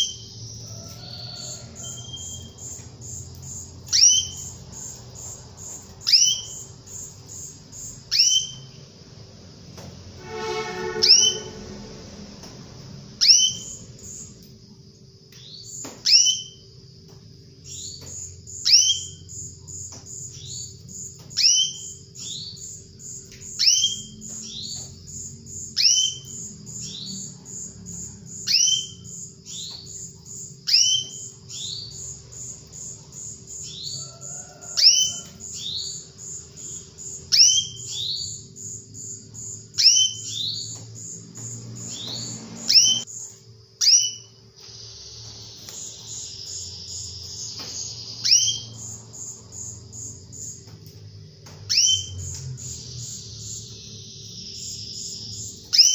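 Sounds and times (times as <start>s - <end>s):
canary calling: 0.0s - 8.8s, 10.2s - 12.0s, 13.2s - 14.3s, 28.3s - 43.1s, 43.8s - 50.5s, 51.7s - 55.9s.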